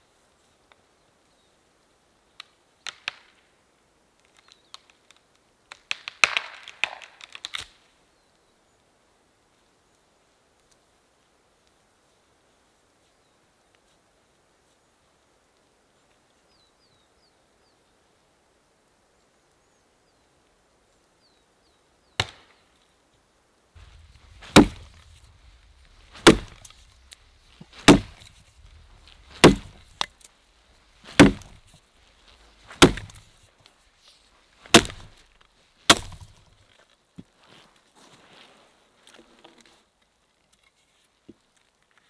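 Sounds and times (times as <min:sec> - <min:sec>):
axe chopping log: 0:23.8 - 0:30.2, 0:31.0 - 0:31.8, 0:32.7 - 0:33.4, 0:34.7 - 0:35.2, 0:35.9 - 0:36.4.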